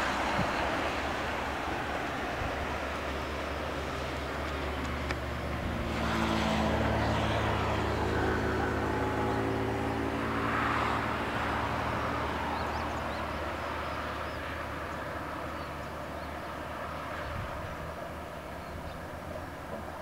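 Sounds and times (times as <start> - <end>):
diesel bus engine: 0.0 - 20.0
tyre and road noise: 0.0 - 20.0.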